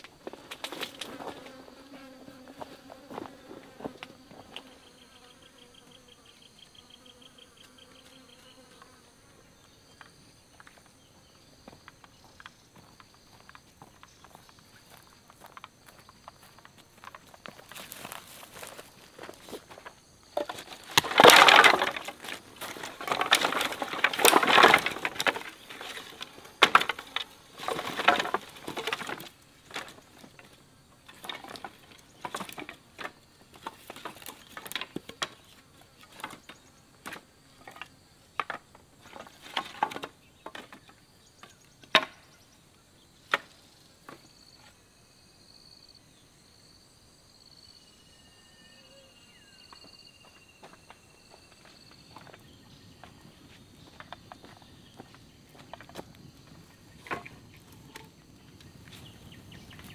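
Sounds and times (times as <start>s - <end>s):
insect chirring: 0.0s - 59.9s
firewood crashing and rustling: 17.6s - 30.5s, 31.1s - 35.4s, 38.4s - 40.7s, 53.8s - 58.1s
firewood snapping and cracking: 20.4s - 29.9s.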